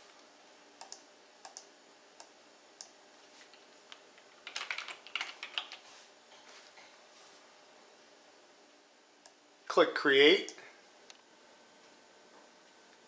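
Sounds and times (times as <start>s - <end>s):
keyboard typing: 4.4s - 5.8s.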